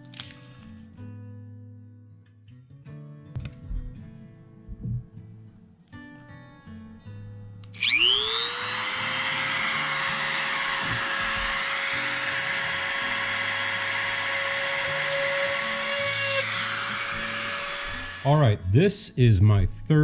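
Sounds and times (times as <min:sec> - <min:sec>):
drill bit grinding on magnet: 0:07.8 - 0:18.4
rotary tool whining: 0:07.8 - 0:18.4.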